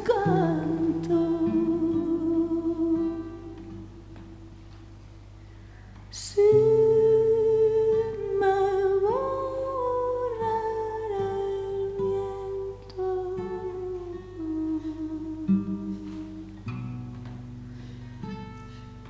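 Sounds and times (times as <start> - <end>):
quiet music notes: 0.0 - 5.4.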